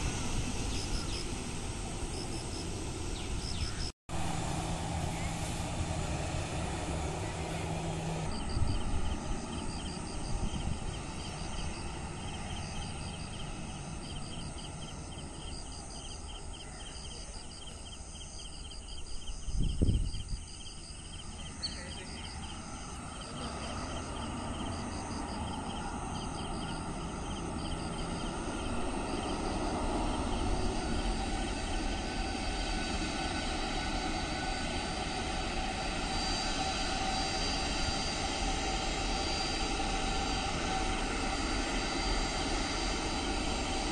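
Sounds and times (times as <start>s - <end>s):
jet engines rumbling and whining: 0.0s - 43.9s.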